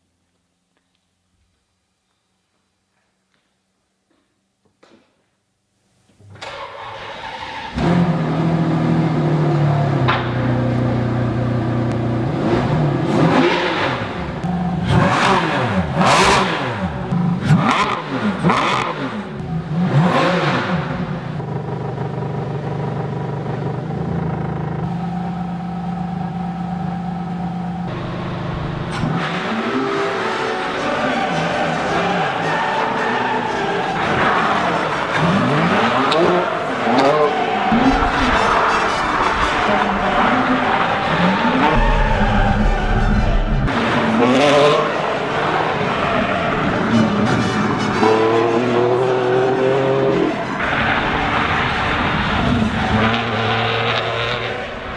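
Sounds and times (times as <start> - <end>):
car engine starting: 6.2 - 54.9
car engine revving: 7.7 - 54.9
car engine idling: 21.4 - 29.1, 37.7 - 43.9.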